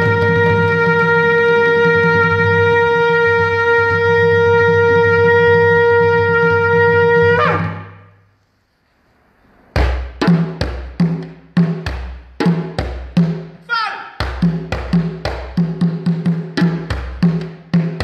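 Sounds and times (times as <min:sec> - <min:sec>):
horn blowing long note: 0:00.0 - 0:08.2.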